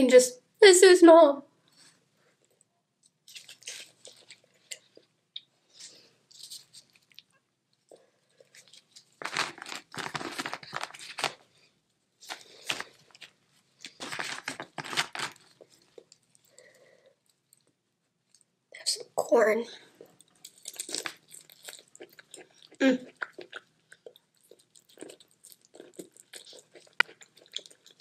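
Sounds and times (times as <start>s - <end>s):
shell crackling and tearing: 3.3s - 4.4s, 8.6s - 11.4s, 12.3s - 15.7s.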